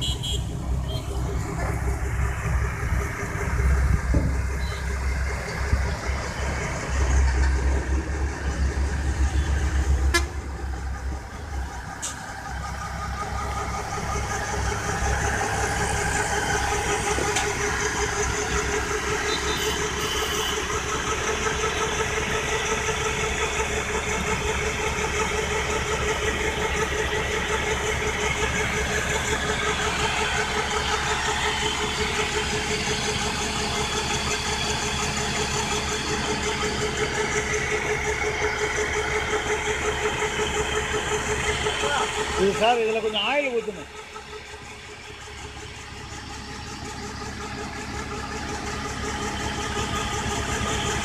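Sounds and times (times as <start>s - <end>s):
tractor engine driving water pump: 0.0s - 51.0s.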